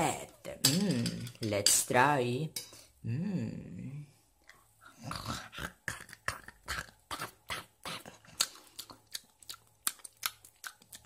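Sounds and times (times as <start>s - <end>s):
candies being chewed: 5.2s - 11.0s.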